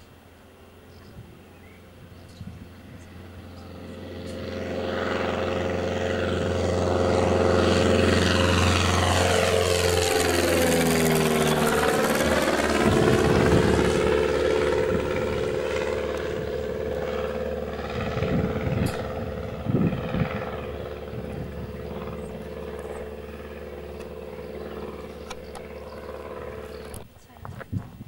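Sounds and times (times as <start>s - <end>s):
light aircraft engine droning: 0.0s - 28.0s.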